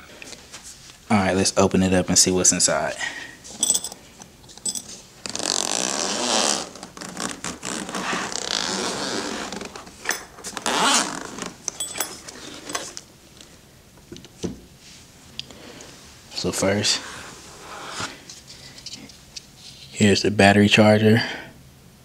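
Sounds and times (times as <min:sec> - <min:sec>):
zipper being pulled open: 0:05.2 - 0:11.6.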